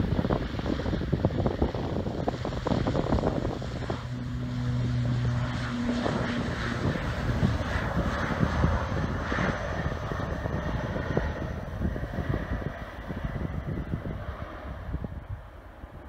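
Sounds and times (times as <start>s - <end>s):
turboprop engines droning: 0.0s - 16.0s
wind buffeting microphone: 0.0s - 16.0s.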